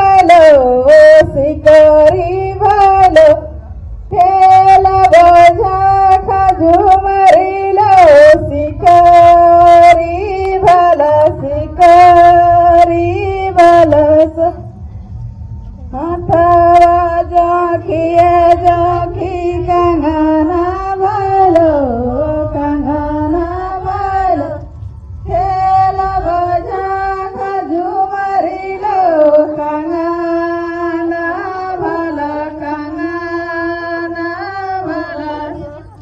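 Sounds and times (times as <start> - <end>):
women singing into a microphone: 0.0 - 14.7, 15.9 - 36.0
low rumble: 1.2 - 27.8.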